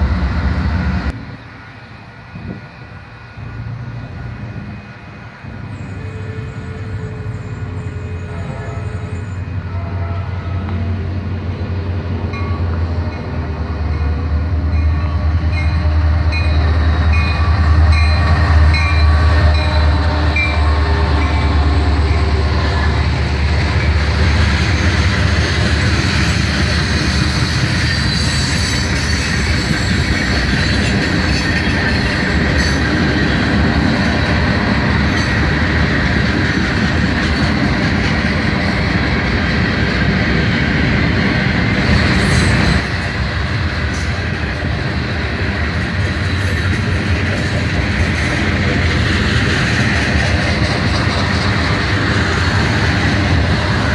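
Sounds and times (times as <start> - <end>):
diesel locomotive rumbling past: 0.0 - 53.9
train wheels clattering and squealing: 11.5 - 53.9
locomotive bell ringing: 12.2 - 22.4.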